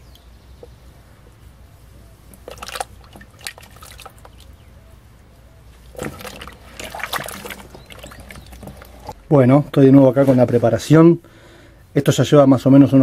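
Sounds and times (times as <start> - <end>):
water dripping and splashing: 2.2 - 4.6, 5.8 - 9.2.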